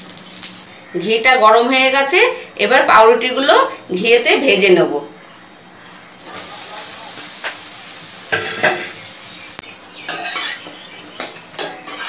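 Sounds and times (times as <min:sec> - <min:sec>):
bread sizzling in oil: 0:00.0 - 0:00.7, 0:06.2 - 0:12.0
spatula scraping metal pan: 0:10.1 - 0:10.7, 0:11.6 - 0:12.0.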